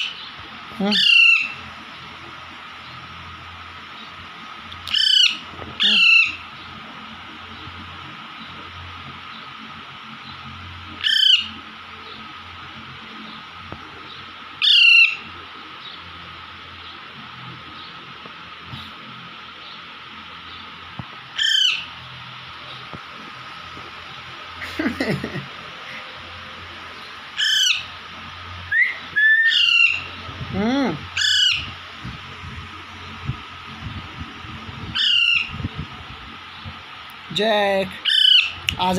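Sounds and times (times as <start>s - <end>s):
parakeet calling loudly: 0.0s - 1.7s, 4.8s - 6.7s, 11.0s - 11.6s, 14.6s - 15.3s, 21.3s - 22.2s, 27.3s - 30.2s, 30.9s - 31.8s, 34.9s - 35.6s, 37.8s - 38.9s.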